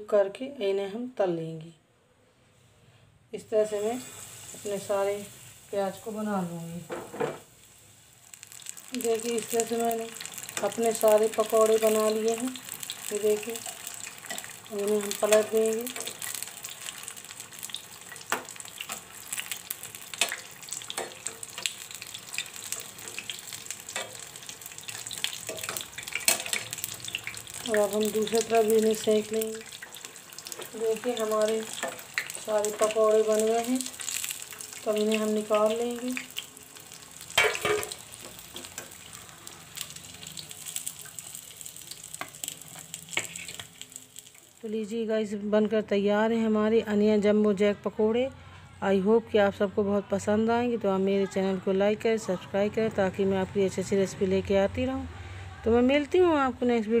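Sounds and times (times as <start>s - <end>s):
food deep-frying in oil: 3.6s - 44.9s
metal spoon turning food: 8.3s - 44.6s.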